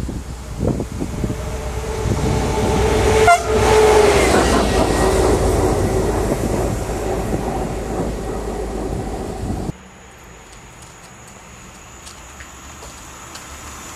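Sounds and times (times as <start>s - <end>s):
train wheels rumbling on rails: 0.0s - 9.8s
train horn toot: 0.5s - 6.5s.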